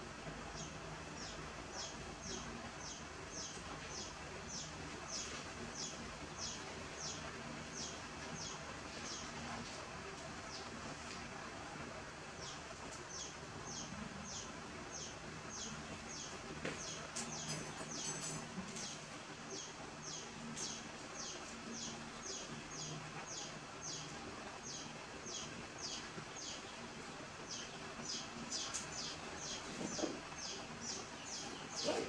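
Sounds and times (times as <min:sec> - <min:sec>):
bird chirping: 0:27.5 - 0:32.0.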